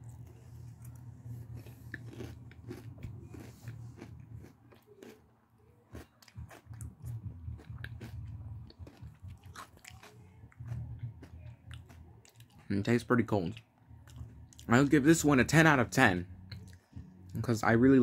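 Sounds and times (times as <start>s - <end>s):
ice cream cone crunching: 0.0s - 12.8s
wet chewing clicks: 0.9s - 5.2s, 5.8s - 12.7s.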